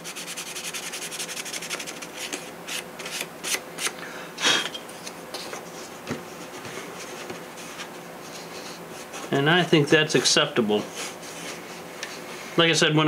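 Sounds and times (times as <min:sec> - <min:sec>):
sandpaper rubbing on wood: 0:00.0 - 0:02.1.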